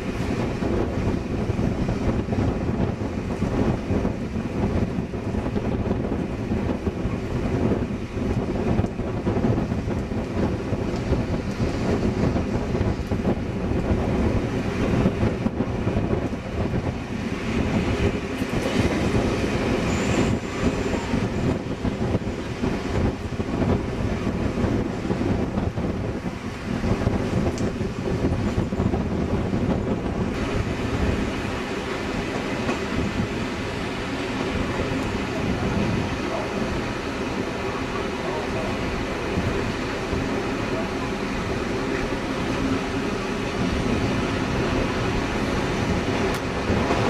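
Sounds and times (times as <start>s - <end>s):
train wheels rumbling on rails: 0.0s - 47.0s
train wheels squealing: 18.6s - 21.6s.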